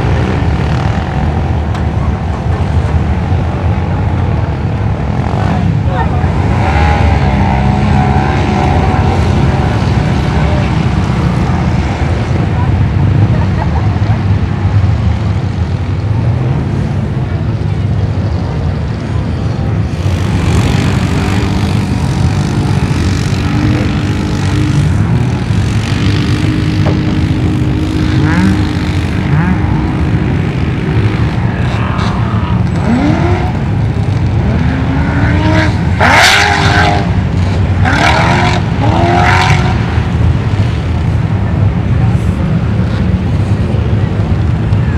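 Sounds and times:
low engine rumble: 0.0s - 36.1s, 36.8s - 44.9s
engine revving up: 5.1s - 12.4s, 19.9s - 40.1s.

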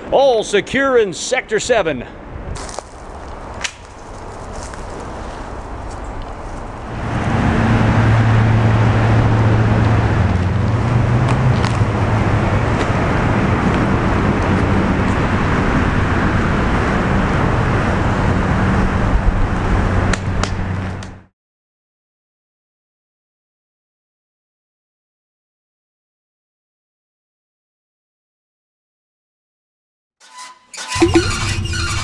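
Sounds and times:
road traffic rumble: 0.0s - 21.3s
low engine drone: 5.8s - 21.2s, 31.0s - 32.0s.

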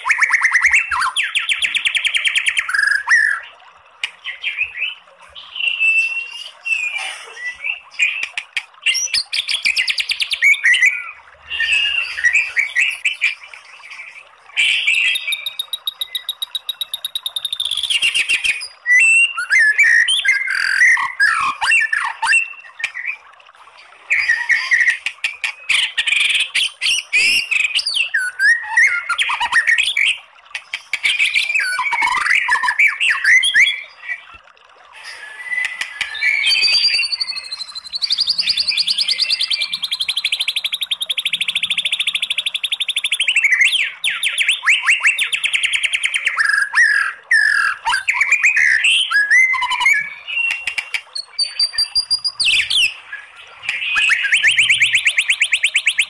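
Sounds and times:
bird singing varied song: 0.0s - 23.2s, 35.0s - 56.0s.

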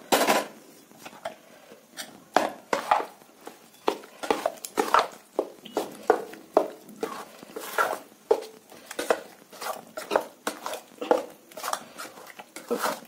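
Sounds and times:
metal spoon scraping steel bowl: 8.9s - 13.0s.

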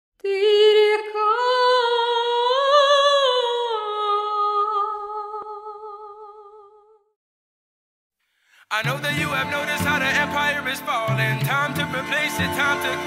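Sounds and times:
person singing wordless melody: 8.6s - 13.0s.

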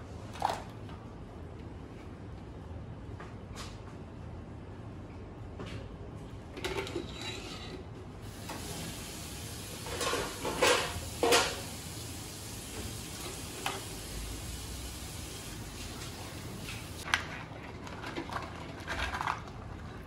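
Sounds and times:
boiling water bubbling: 8.3s - 20.0s.

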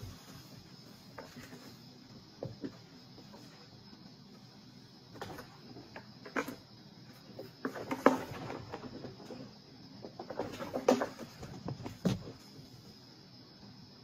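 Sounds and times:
kittens' paws scrabbling on cardboard: 10.1s - 12.5s.

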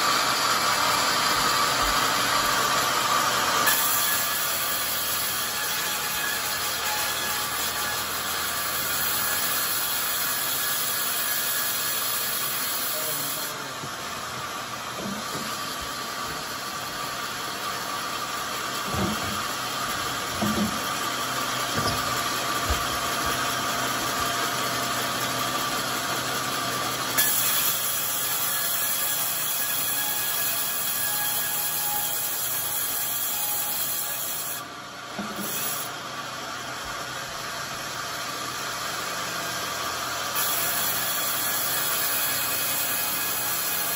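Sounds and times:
band saw running: 0.0s - 43.9s
wooden knocks: 20.3s - 20.8s, 21.7s - 23.4s.

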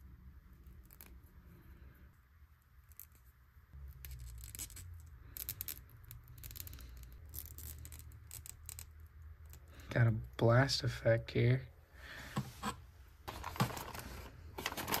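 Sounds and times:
plastic packaging crinkling: 13.3s - 15.0s.

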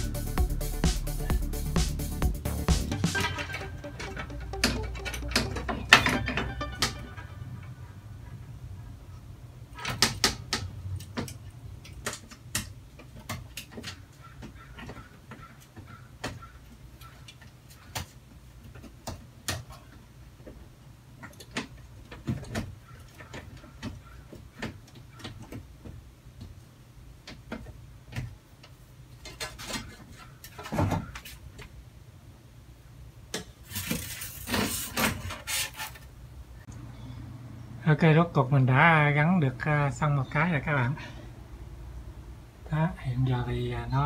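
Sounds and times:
rubbing and scraping: 33.6s - 36.2s.

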